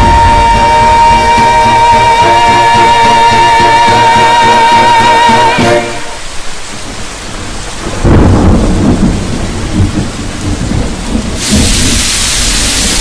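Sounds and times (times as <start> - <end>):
deep thunder rumble: 0.0 - 1.6, 6.7 - 13.0
steady rain: 0.0 - 13.0
television static hiss: 11.4 - 13.0.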